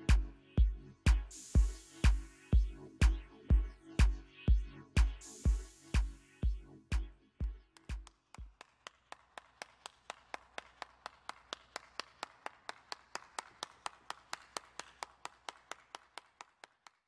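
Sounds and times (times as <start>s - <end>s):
electronic music bass beats: 0.0s - 8.6s
person clapping hands: 7.7s - 17.0s.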